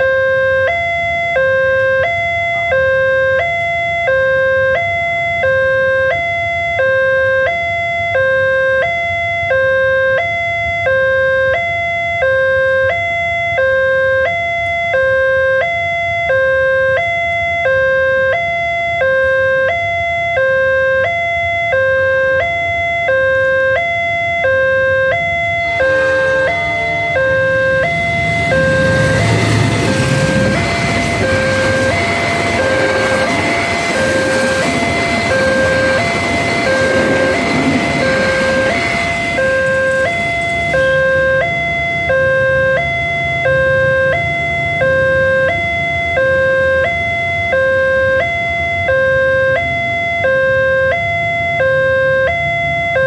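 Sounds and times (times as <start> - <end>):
level crossing two-tone alarm: 0.0 - 53.0
diesel locomotive rumbling past: 25.1 - 46.2.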